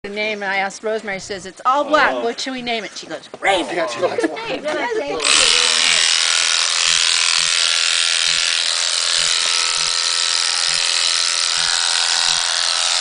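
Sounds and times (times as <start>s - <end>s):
electric clippers buzzing: 5.2s - 13.0s.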